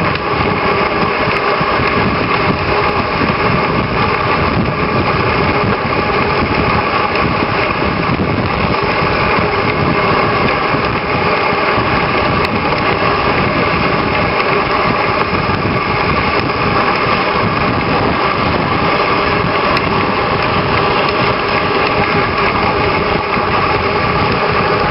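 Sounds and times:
sled rushing over packed snow: 0:00.0 - 0:24.9.

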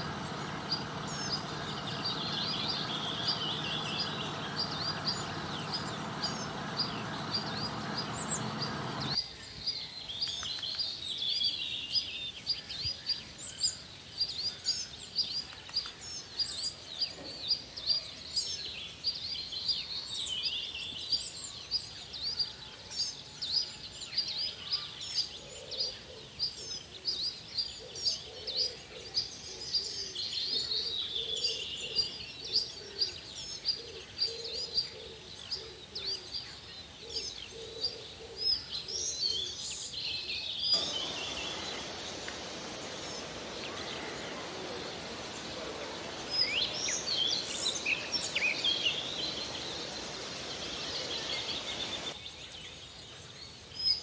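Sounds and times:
birds chirping: 0:00.0 - 0:09.2, 0:40.4 - 0:52.3
steady rushing noise: 0:40.8 - 0:52.1.

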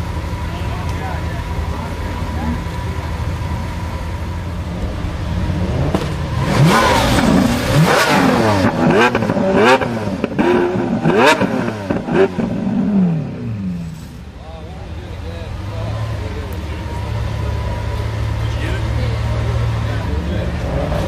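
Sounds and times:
car engine idling and revving: 0:00.0 - 0:21.0
exhaust cracks: 0:00.8 - 0:14.3.

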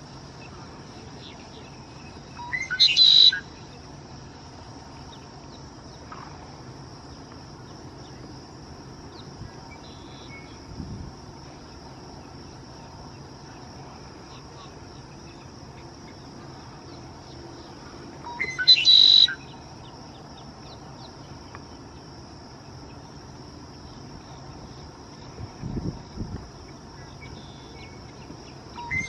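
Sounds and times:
insects humming: 0:00.0 - 0:29.0
blackbird singing: 0:01.2 - 0:03.6, 0:18.2 - 0:21.2, 0:27.0 - 0:29.0.

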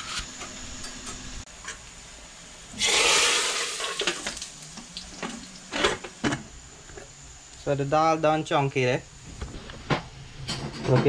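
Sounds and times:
hot oil sizzling: 0:00.2 - 0:07.6.

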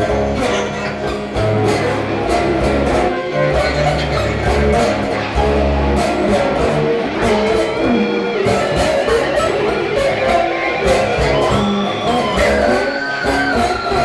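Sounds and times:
deep bass: 0:00.0 - 0:10.4
plucked strings: 0:00.0 - 0:14.0.

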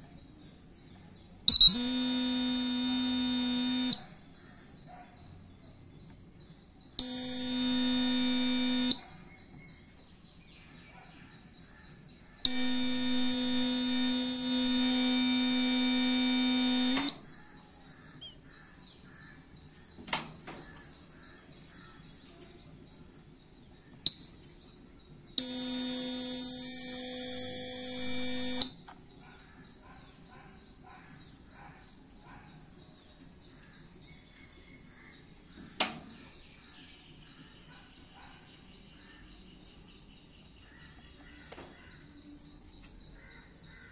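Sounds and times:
high-pitched alarm buzzer: 0:01.5 - 0:04.1, 0:07.0 - 0:09.1, 0:12.5 - 0:17.2, 0:25.4 - 0:28.8.

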